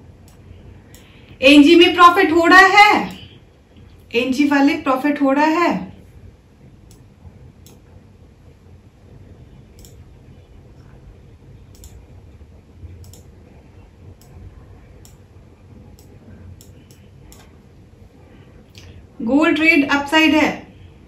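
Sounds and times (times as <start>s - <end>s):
faint low hum: 0.0s - 21.0s
computer mouse clicking: 9.8s - 10.0s, 11.7s - 12.0s, 13.0s - 13.3s, 16.0s - 17.5s.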